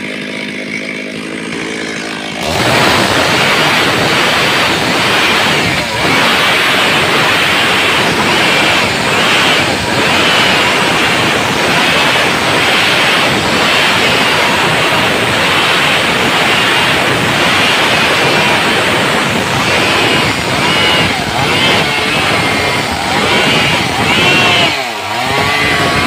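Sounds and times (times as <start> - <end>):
chainsaw cutting timber: 0.0 - 26.0.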